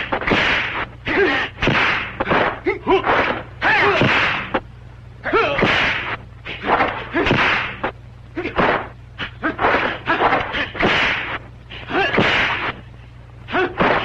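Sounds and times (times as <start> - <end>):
slapping punch hits: 0.0 - 0.9, 1.6 - 4.6, 5.6 - 7.9, 8.6 - 11.4, 12.1 - 12.8, 13.8 - 14.0
whooshing swings: 0.0 - 4.6, 5.6 - 7.9, 8.6 - 12.8
steady low hum: 0.0 - 14.0
fighters shouting: 0.3 - 4.6, 5.2 - 7.8, 8.4 - 12.8, 13.5 - 14.0.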